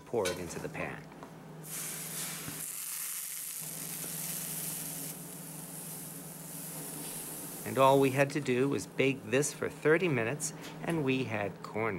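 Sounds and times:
batter sizzling in hot oil: 0:01.6 - 0:08.2.

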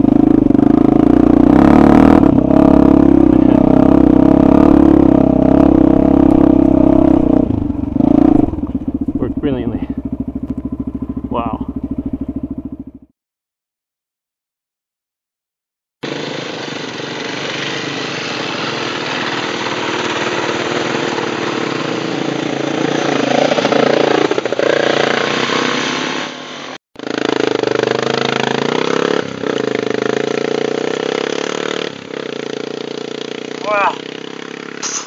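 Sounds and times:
off-road motorcycles riding past: 0:00.0 - 0:13.1, 0:16.0 - 0:35.0.

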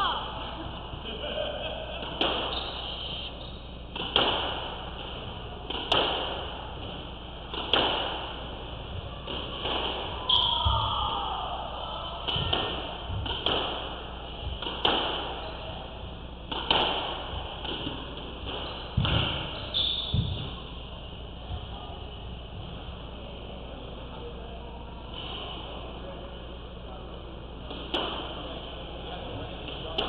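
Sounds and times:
squash ball cracks on racket and wall: 0:04.0 - 0:04.6, 0:05.7 - 0:06.5, 0:07.5 - 0:08.3
short falling squeak: 0:19.5 - 0:20.3.

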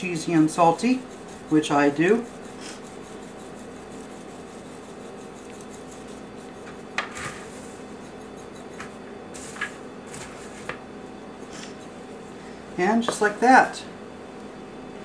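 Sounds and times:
seasoning shaken from metal shaker: 0:00.0 - 0:09.7
wooden spoon stirring popcorn: 0:00.0 - 0:10.8
steady low hum: 0:00.0 - 0:15.0.

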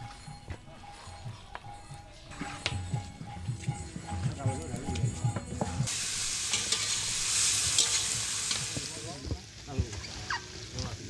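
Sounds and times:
steady hissing rustling noise: 0:04.8 - 0:11.0.

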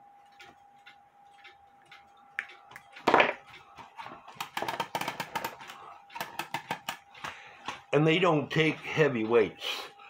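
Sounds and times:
small clock parts clicking: 0:00.3 - 0:09.7.

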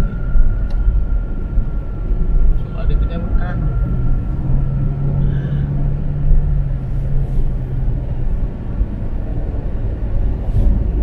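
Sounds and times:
car engine and tyre rumble: 0:00.0 - 0:11.0
low hum: 0:00.0 - 0:11.0.

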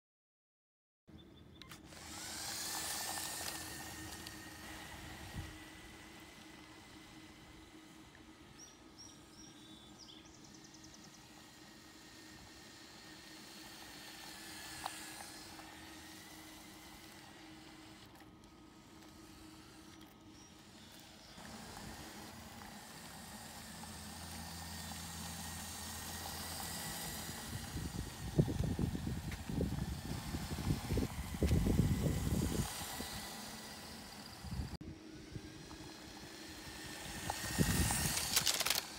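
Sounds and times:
electric motor whine: 0:01.5 - 0:38.9
tyre noise on asphalt: 0:01.7 - 0:08.6, 0:09.4 - 0:38.9.

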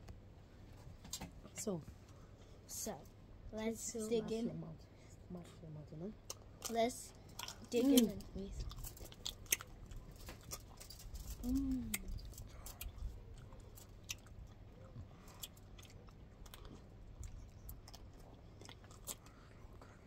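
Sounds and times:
chewing and lip smacks: 0:06.2 - 0:20.0
person humming: 0:11.4 - 0:12.2.

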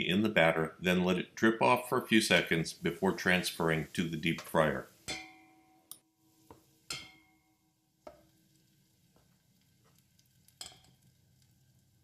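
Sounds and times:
metal tongs tapping a steel bowl: 0:05.1 - 0:06.0, 0:06.9 - 0:07.4, 0:10.6 - 0:11.0.

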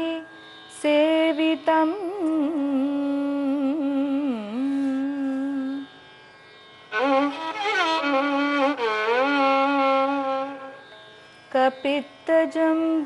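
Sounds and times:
bowed violin with sliding ornaments: 0:04.6 - 0:13.0.

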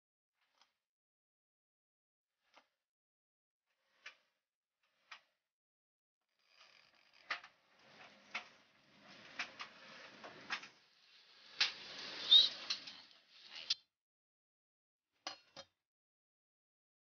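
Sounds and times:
faint hiss: 0:10.3 - 0:13.8
short high chirp: 0:12.2 - 0:12.7.

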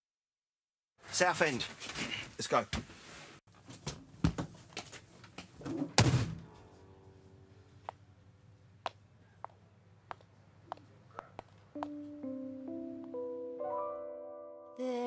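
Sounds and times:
high heels clicking: 0:08.8 - 0:13.3.

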